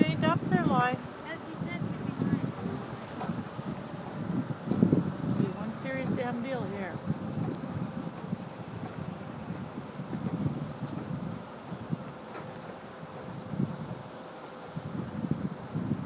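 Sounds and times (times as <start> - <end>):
vehicle rumble from inside cab: 0.0 - 12.2.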